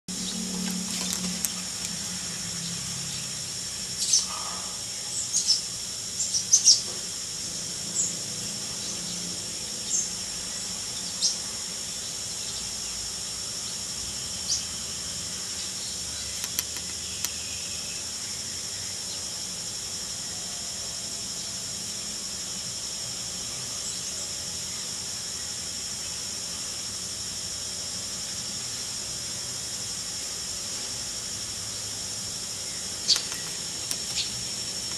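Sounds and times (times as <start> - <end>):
high-pitched insect drone: 0.1 - 34.9
bird chirping: 32.6 - 34.9.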